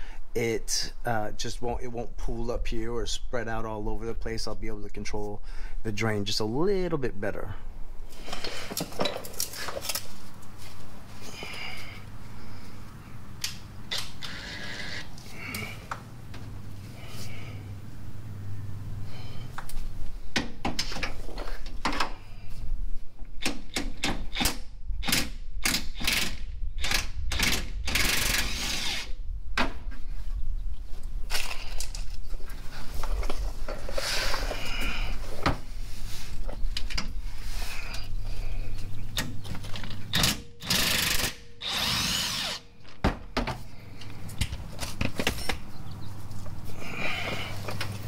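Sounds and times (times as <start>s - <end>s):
power tool running in bursts: 40.6s - 42.6s.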